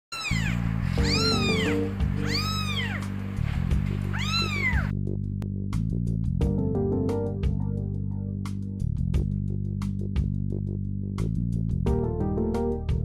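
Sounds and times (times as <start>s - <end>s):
kitten meowing: 0.1s - 3.2s, 3.9s - 4.9s
background music with bass line: 0.9s - 2.6s, 3.6s - 13.0s.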